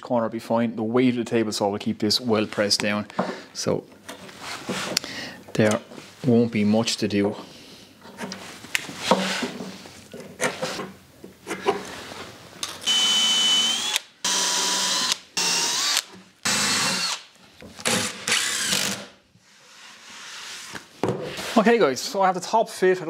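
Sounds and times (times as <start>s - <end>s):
cordless drill driving screws: 12.6s - 19.2s.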